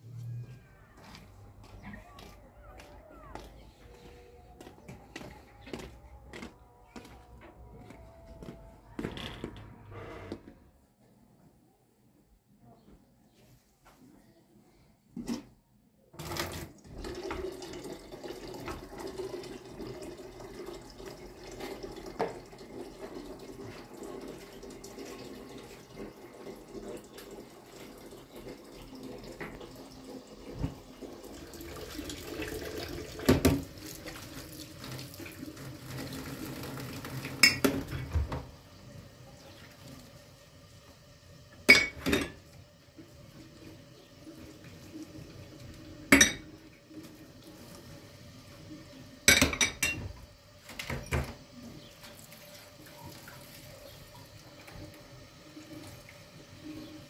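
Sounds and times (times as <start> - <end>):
tap running into a sink: 21.7 - 22.6, 30.4 - 38.5
dishes clattering against sink: 37.2 - 38.5, 41.7 - 42.4, 46.1 - 46.6, 49.3 - 51.4
glassware clinking: 37.4 - 37.8, 41.7 - 42.4, 46.1 - 46.5, 49.3 - 50.1.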